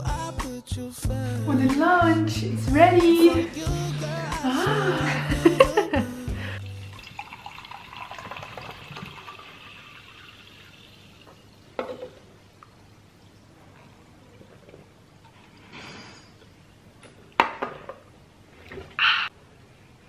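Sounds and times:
drink pouring into mug: 0:06.6 - 0:12.2.

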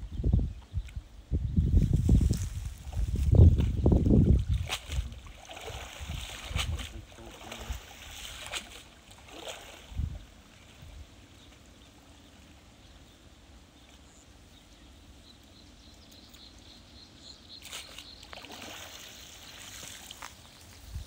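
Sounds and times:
splashing and net rustling: 0:02.1 - 0:10.2, 0:17.6 - 0:20.8
water sloshing and dripping: 0:03.6 - 0:10.3, 0:17.6 - 0:20.8.

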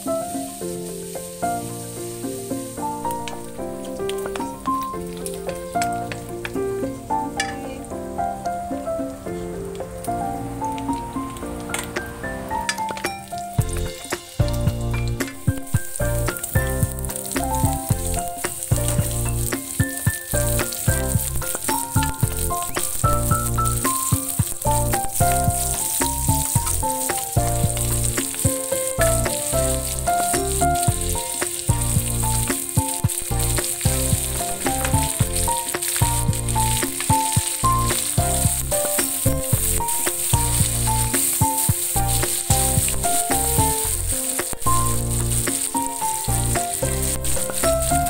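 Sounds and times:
meat and onions sizzling in a wok: 0:00.0 - 0:48.0
wooden spoon stirring: 0:12.8 - 0:48.0
background music with pulsing bass: 0:13.6 - 0:19.7, 0:20.3 - 0:48.0.

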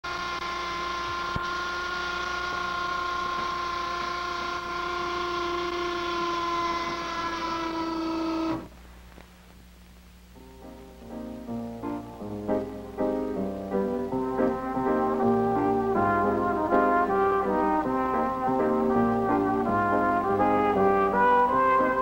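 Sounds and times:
steady pitched tone: 0:10.4 - 0:22.0.

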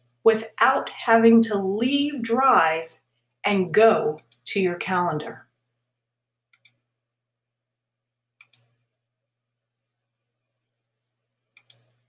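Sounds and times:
computer mouse button clicks: 0:08.4 - 0:08.7, 0:11.6 - 0:11.9.

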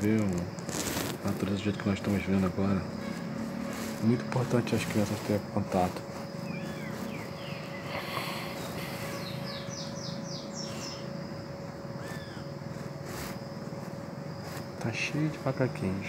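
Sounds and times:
animal chirping glides: 0:12.0 - 0:12.5.

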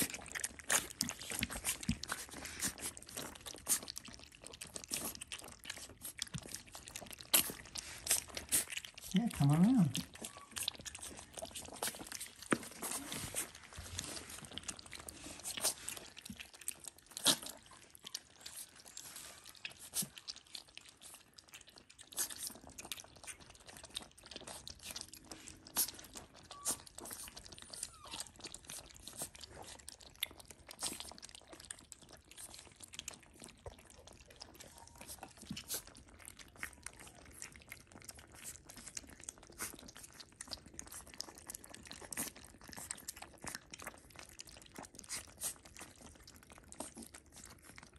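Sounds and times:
puppies crunching kibble: 0:00.0 - 0:47.9.

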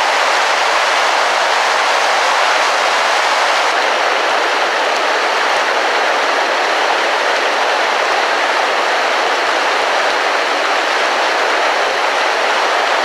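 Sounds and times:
water rushing down waterfall: 0:00.0 - 0:13.0.

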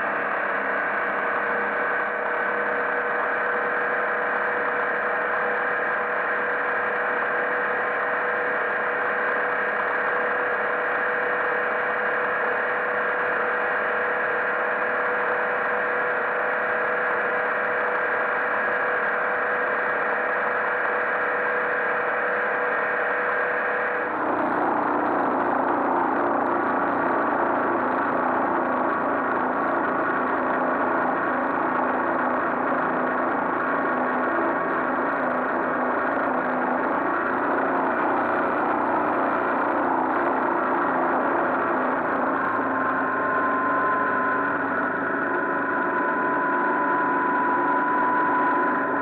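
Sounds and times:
boat engine running: 0:34.6 - 0:49.0.

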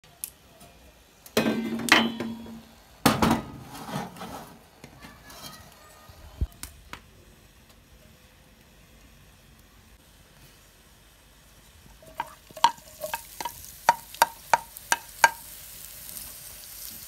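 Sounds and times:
pan clunking onto stovetop: 0:01.4 - 0:04.1, 0:12.0 - 0:15.4
metal stove lid clanking: 0:01.4 - 0:04.2.

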